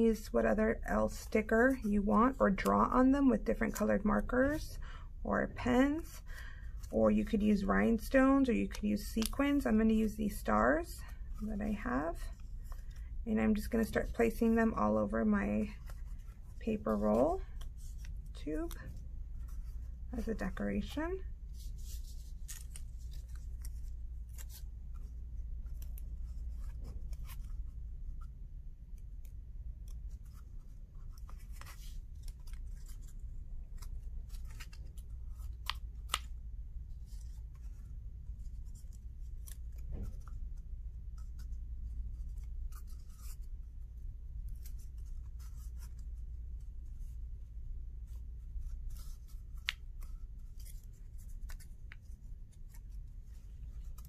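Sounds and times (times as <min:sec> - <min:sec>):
paper stickers rustling and crinkling: 0:05.6 - 0:54.0.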